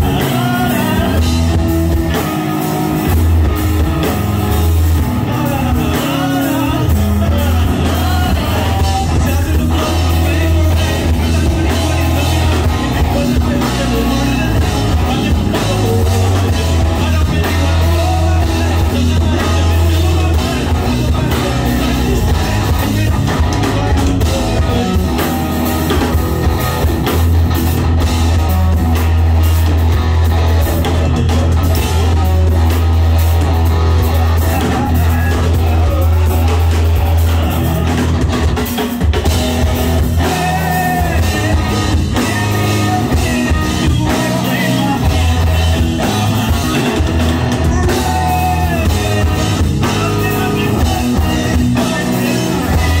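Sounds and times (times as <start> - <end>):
person singing into a microphone: 0.0 - 1.9, 5.0 - 26.0, 34.4 - 38.2, 39.1 - 53.0
bass guitar: 0.0 - 53.0
drum kit: 0.0 - 53.0
electric guitar: 0.0 - 53.0.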